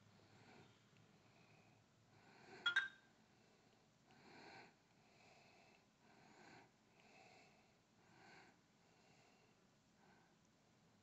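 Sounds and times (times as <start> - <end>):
phone double-click blip: 2.7 - 3.0.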